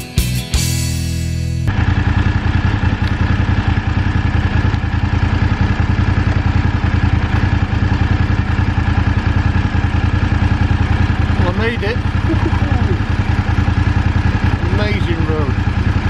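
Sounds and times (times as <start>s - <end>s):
motorcycle engine running at low revs: 0.0s - 16.0s.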